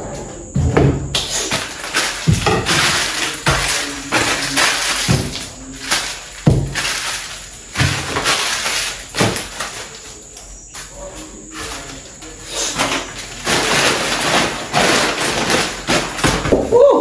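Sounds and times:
items knocked onto countertop: 0.6 - 9.8, 12.8 - 16.7
plastic packaging rustling: 1.2 - 16.7.

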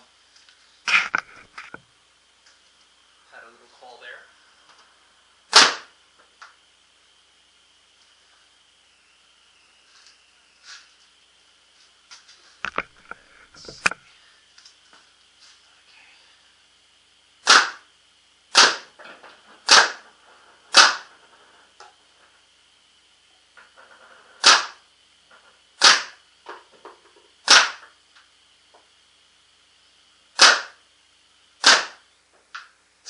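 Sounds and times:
paintball marker shots: 5.5 - 5.9, 17.4 - 17.9, 18.5 - 18.9, 19.6 - 20.1, 20.7 - 21.1, 24.4 - 24.8, 25.8 - 26.2, 27.4 - 27.9, 30.4 - 30.8, 31.6 - 32.0.

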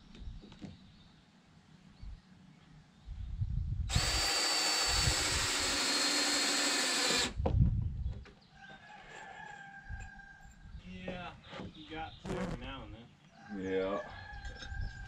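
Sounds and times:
cordless drill whining: 3.9 - 7.4.

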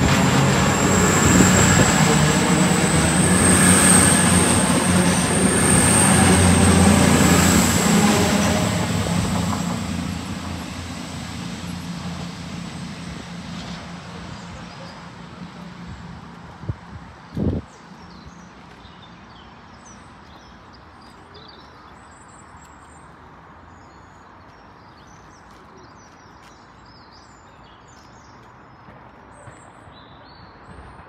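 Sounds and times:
diesel train passing: 0.0 - 20.9.

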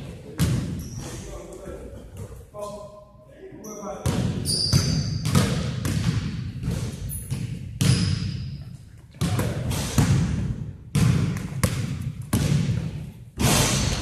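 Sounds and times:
basketball bouncing: 0.3 - 0.9, 4.0 - 14.0
shoe squeak: 0.7 - 1.4, 3.6 - 5.4, 7.0 - 8.8.

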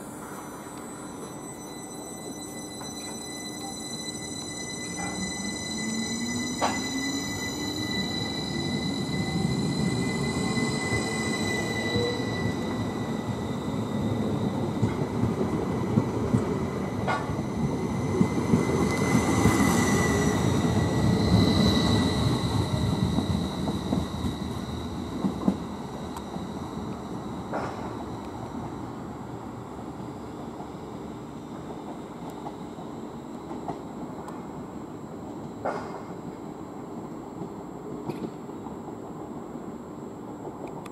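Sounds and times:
high-pitched squeal: 0.1 - 14.7, 17.1 - 28.2
train wheels rumbling on rail: 2.8 - 40.9.

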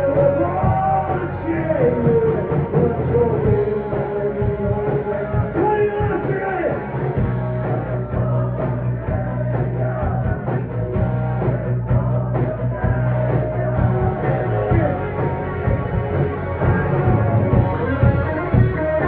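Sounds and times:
person singing: 0.0 - 6.8
bass guitar: 0.0 - 19.0
drum kit: 0.0 - 19.0
electric guitars: 0.0 - 19.0.

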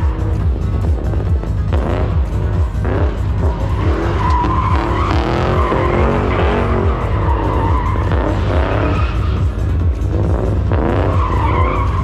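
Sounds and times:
car engine revving: 0.0 - 12.0
tyres squealing: 3.3 - 9.5.

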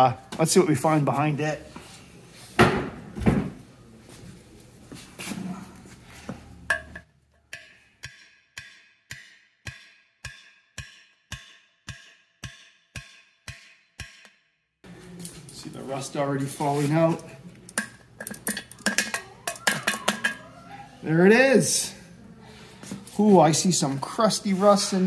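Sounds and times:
hammer striking steel punch: 7.5 - 14.4.

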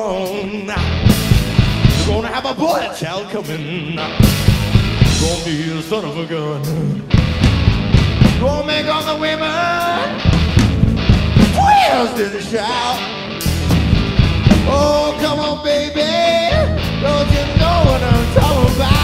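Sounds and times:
bass: 0.0 - 19.0
drum kit: 0.0 - 19.0
electric guitar: 0.0 - 19.0
man singing long notes: 1.9 - 4.4, 5.1 - 7.2, 8.4 - 10.4, 11.6 - 13.1, 14.6 - 19.0.

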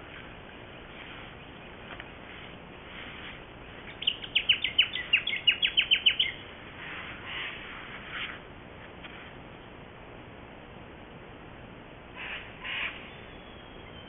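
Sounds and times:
faint noisy sounds: 0.0 - 14.0
bird calling high down-slurred notes: 3.9 - 6.4, 12.2 - 14.0.

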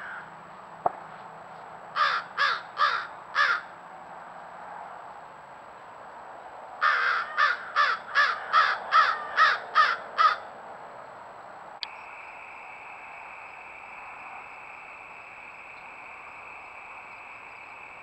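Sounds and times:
crow cawing: 0.0 - 0.3, 2.0 - 3.7, 6.8 - 10.5
steady high drone: 11.8 - 18.0.

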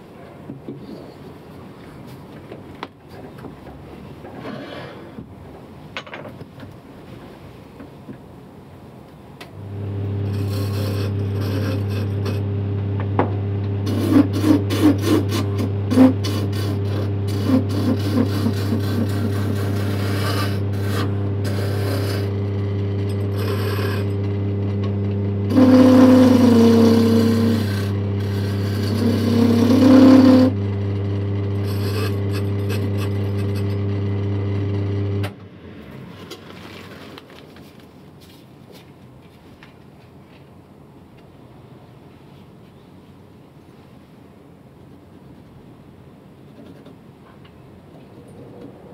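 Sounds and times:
lathe tool cutting wood: 9.6 - 35.3
wood lathe motor humming: 9.6 - 35.3.

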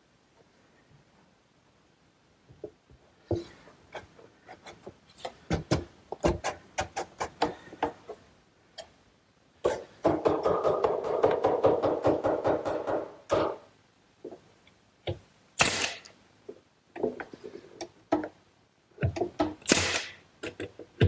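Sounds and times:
sharp uneven knocks and clicks: 19.0 - 21.0.

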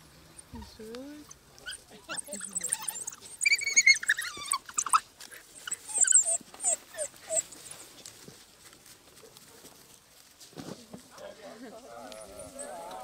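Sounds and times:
wild dogs twittering: 1.7 - 7.5.

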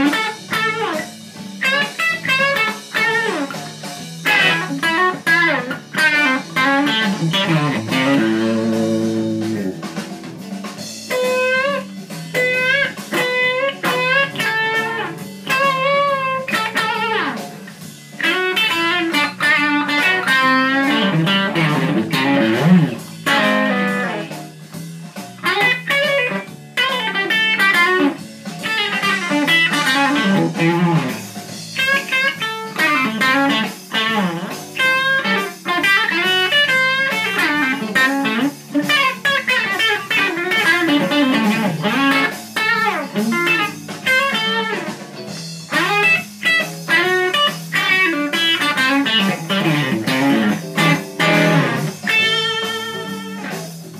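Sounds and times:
overdriven electric guitar lead: 0.0 - 53.9.

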